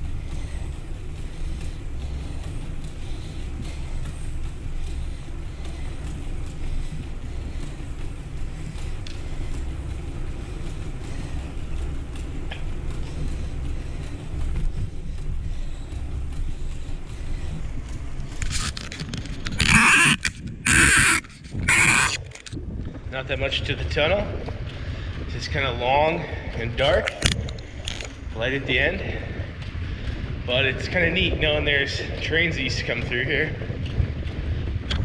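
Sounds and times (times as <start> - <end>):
bicycle tyre noise on trail: 0.0 - 35.0
wind on microphone: 17.6 - 35.0.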